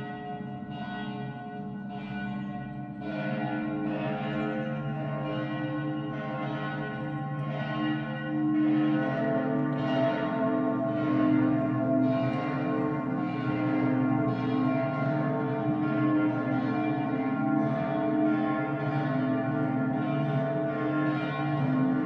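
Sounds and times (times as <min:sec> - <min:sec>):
church bells ringing: 0:00.0 - 0:22.0.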